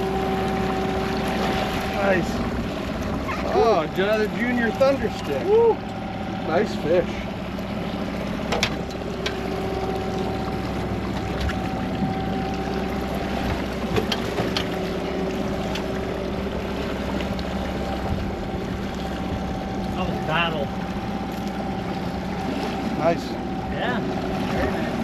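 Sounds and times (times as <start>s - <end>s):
boat motor humming: 0.0s - 25.0s
water noise: 0.0s - 25.0s
wind: 0.0s - 25.0s
light knocks on boat: 8.4s - 9.4s, 13.4s - 14.9s.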